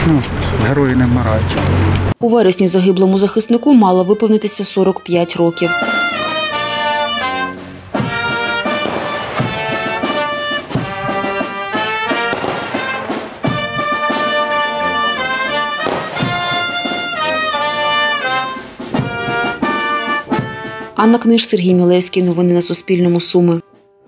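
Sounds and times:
brass band playing slow notes: 5.6 - 21.0.

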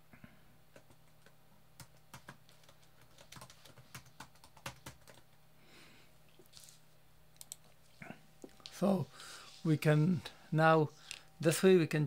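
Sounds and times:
keyboard typing: 0.7 - 5.3, 7.4 - 7.8.

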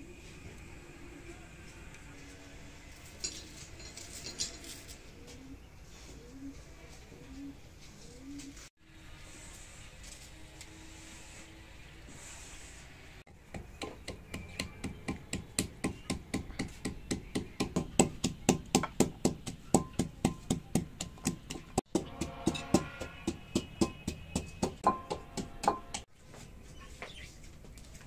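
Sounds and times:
pestle pounding in mortar: 13.5 - 26.0.

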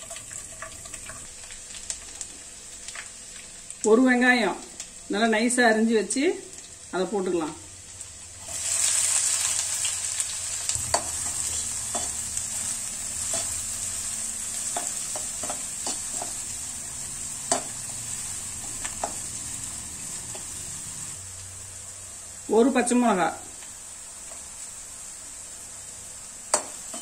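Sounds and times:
onion sizzling in butter: 0.0 - 27.0
spoon scraping a pan: 26.5 - 27.0.

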